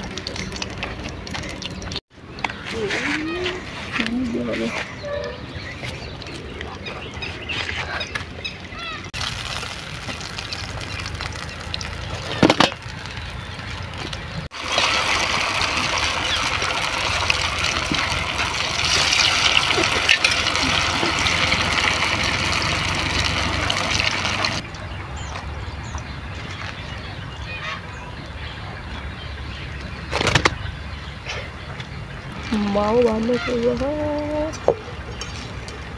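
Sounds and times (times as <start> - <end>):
oil sizzling: 9.2 - 24.6.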